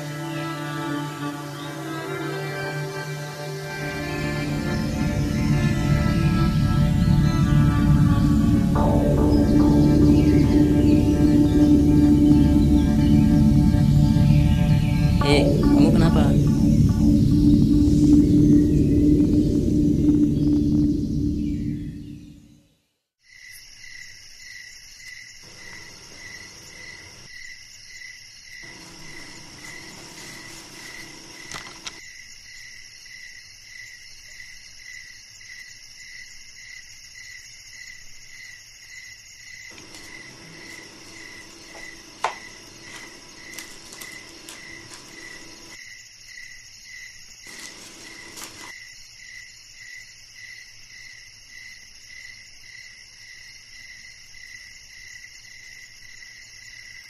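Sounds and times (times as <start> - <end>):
insects chirping: 0.0 - 22.6, 23.2 - 57.0.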